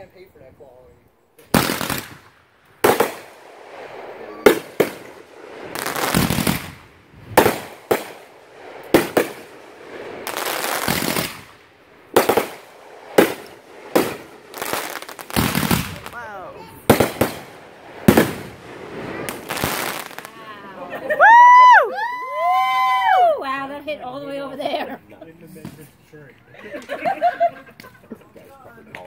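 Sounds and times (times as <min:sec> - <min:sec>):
fireworks bangs: 0:01.4 - 0:23.2, 0:25.5 - 0:26.1
fireworks hissing: 0:01.4 - 0:24.6.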